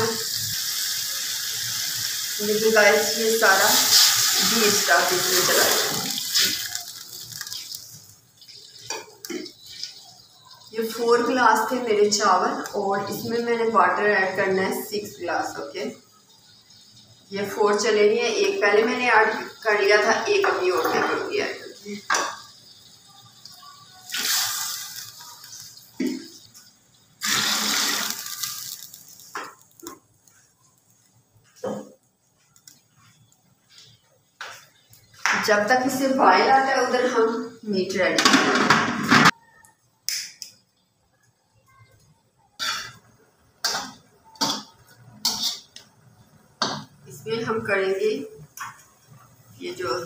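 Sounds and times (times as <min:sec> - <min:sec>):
water pouring into a pot: 0:00.0 - 0:12.9, 0:14.8 - 0:31.1
metal skimmer scraping a wok: 0:45.2 - 0:45.8.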